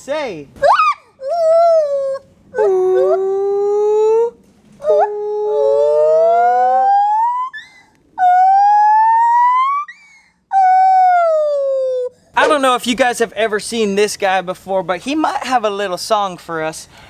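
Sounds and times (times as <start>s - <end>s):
gibbon hooting: 0.6s - 11.9s.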